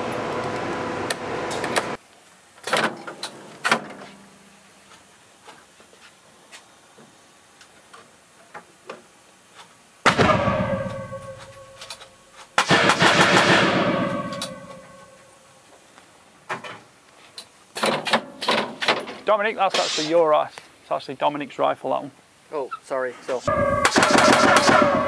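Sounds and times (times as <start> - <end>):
rifle gunshots with metallic echo: 10.1 - 11.6, 12.6 - 14.9, 23.6 - 25.0.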